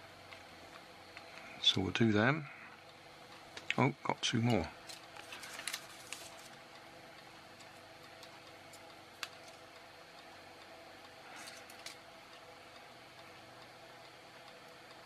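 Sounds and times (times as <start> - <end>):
faint steady hum: 0.0 - 15.0
resistor tape clicks and rustles: 4.4 - 6.9, 7.5 - 9.8, 11.3 - 12.5.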